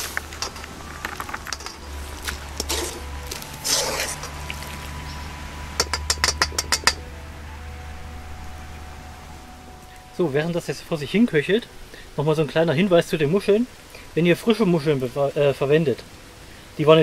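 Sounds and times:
sharp cracks of fire: 0:00.0 - 0:07.0
broth simmering: 0:00.0 - 0:17.0
wood fire crackling: 0:00.0 - 0:17.0.

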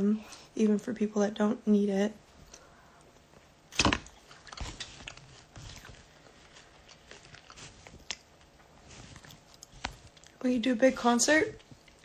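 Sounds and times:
person chewing crunchy cereal: 0:04.1 - 0:10.4.

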